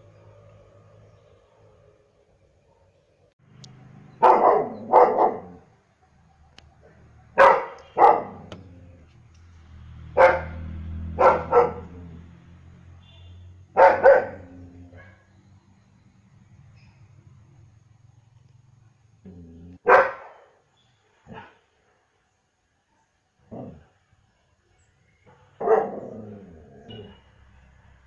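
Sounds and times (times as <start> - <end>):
dog barking: 4.2 - 5.7, 7.0 - 8.6, 10.2 - 12.0, 13.7 - 15.3, 19.8 - 20.6, 21.3 - 21.6, 25.3 - 26.1.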